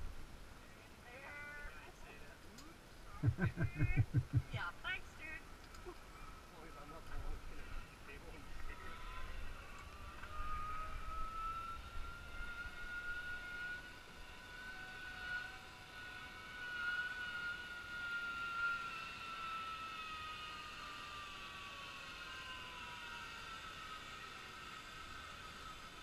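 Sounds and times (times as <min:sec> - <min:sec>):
zipline pulleys whining on cable: 0:00.0 - 0:26.0.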